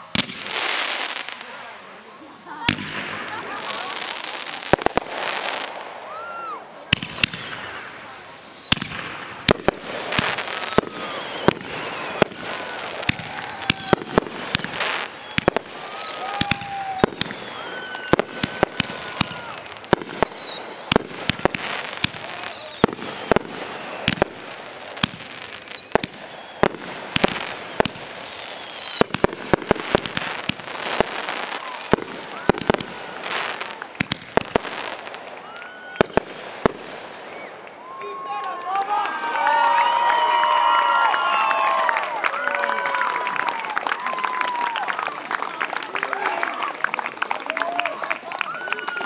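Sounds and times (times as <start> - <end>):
firework bangs: 0.0 - 2.0, 2.6 - 37.6
falling firework whistles: 4.5 - 37.6.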